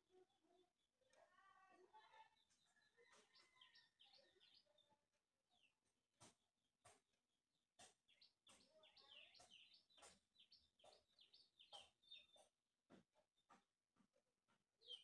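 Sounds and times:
faint bird chirping: 0.1 - 5.0, 8.1 - 12.5.

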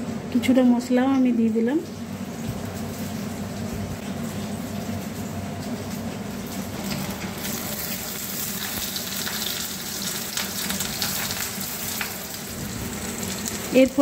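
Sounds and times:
fish sizzling in hot oil: 2.1 - 14.0
oil crackles: 2.3 - 14.0.

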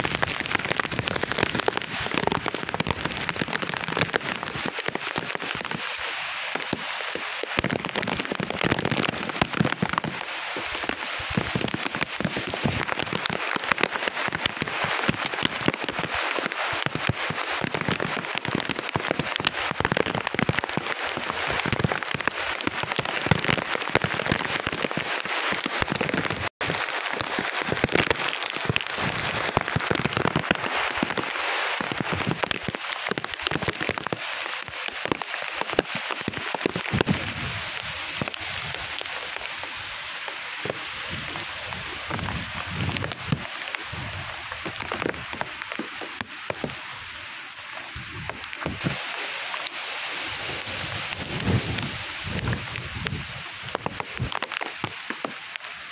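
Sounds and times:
heavy rain pelting down: 0.0 - 55.9
wind gusts buffeting microphone: 36.8 - 40.0, 40.6 - 45.7, 47.9 - 49.1, 49.9 - 54.5.

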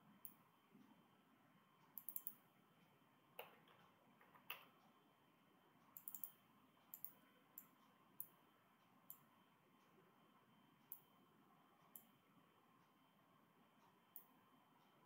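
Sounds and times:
faint mouse and keyboard clicks: 1.8 - 2.4, 3.4 - 4.9, 5.9 - 8.4.

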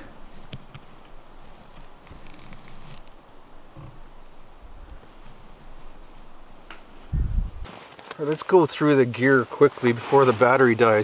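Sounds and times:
wind buffeting microphone: 7.0 - 7.7.

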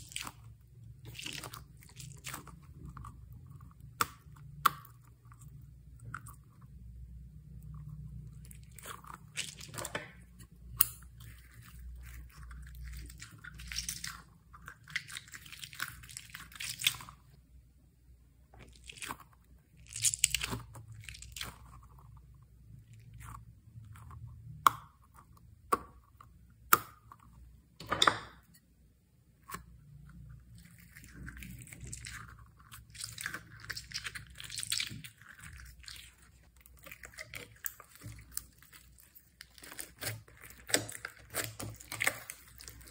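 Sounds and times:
slime squished by hand: 29.4 - 42.9.

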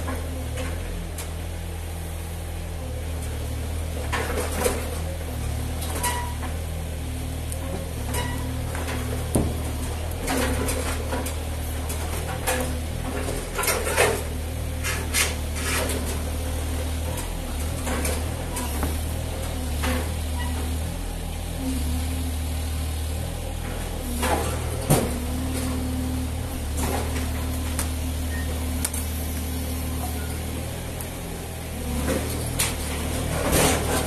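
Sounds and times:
excavator diesel engine running: 0.0 - 34.0
metal clanks and scrapes: 5.8 - 6.6, 8.0 - 16.3, 17.0 - 20.8, 23.7 - 25.7, 31.8 - 34.0.

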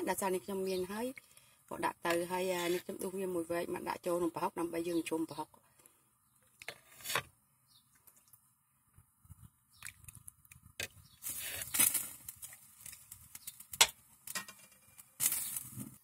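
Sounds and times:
bowl dipping into liquid: 9.7 - 10.8.

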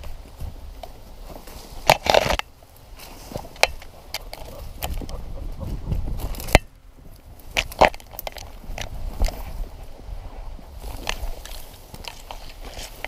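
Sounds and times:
twigs snapping: 0.0 - 5.2, 6.2 - 9.6, 10.8 - 13.0
grass and brush rustling: 0.0 - 13.0
low rumble of movement: 2.6 - 13.0.

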